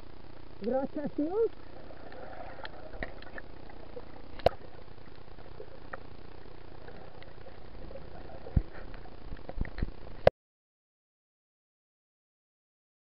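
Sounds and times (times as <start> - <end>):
muffled underwater hiss: 1.2 - 10.3.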